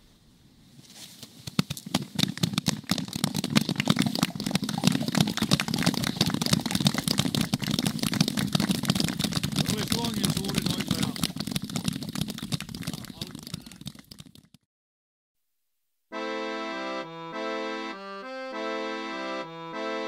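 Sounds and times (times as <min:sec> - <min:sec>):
audience applause: 0:02.2 - 0:14.0.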